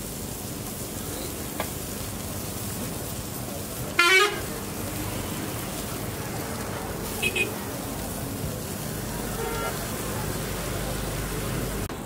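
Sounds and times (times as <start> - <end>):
street background noise: 0.0 - 12.0
vehicle horn beep: 4.0 - 4.4, 7.2 - 7.6, 9.3 - 9.8.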